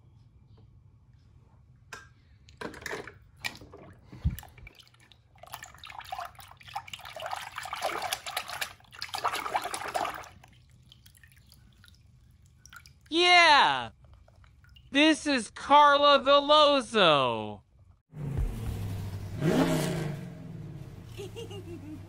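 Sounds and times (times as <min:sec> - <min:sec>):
water sloshing in a tub: 0:03.3 - 0:13.2, 0:13.9 - 0:15.0.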